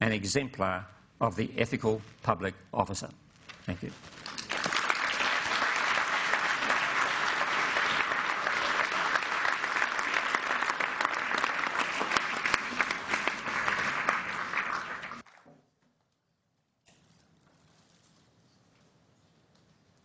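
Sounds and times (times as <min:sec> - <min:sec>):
audience applauding: 0:04.2 - 0:15.3.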